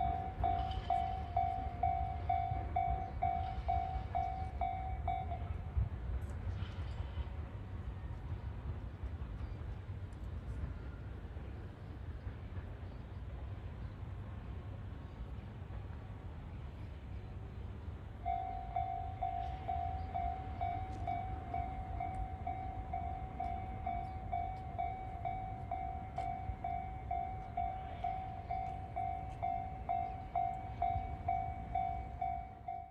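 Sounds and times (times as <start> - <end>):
level crossing warning bell: 0.0 - 5.9, 18.2 - 32.9.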